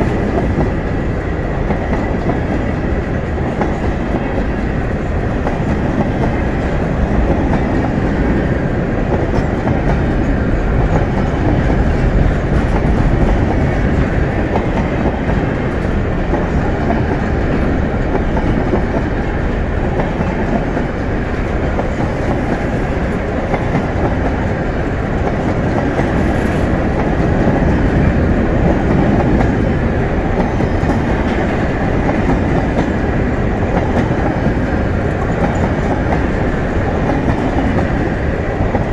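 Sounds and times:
freight train wheels rumbling on rails: 0.0s - 38.9s.

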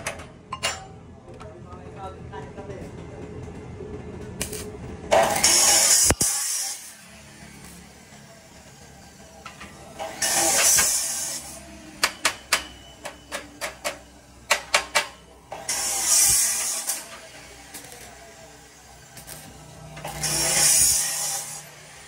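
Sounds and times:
hissing bursts of spray: 5.4s - 7.0s, 10.2s - 11.6s, 15.7s - 17.1s.

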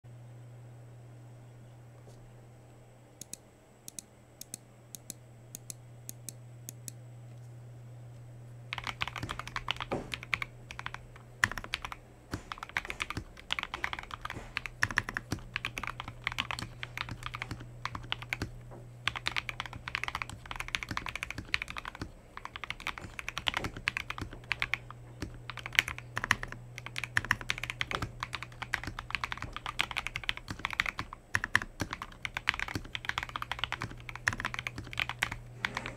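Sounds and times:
steady low hum: 0.1s - 35.9s
mechanical keyboard typing: 8.7s - 35.9s.

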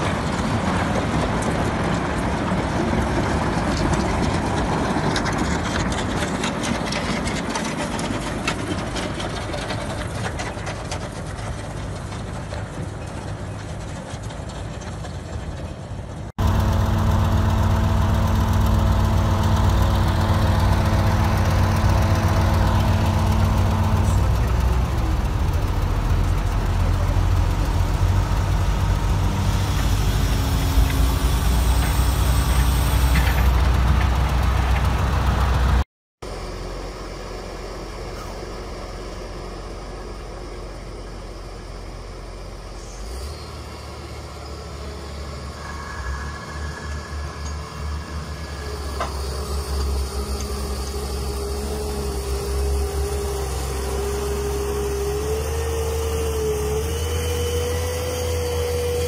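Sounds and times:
heavy vehicle diesel engine pulsing: 0.0s - 59.0s
crane diesel engine running: 16.1s - 59.0s.

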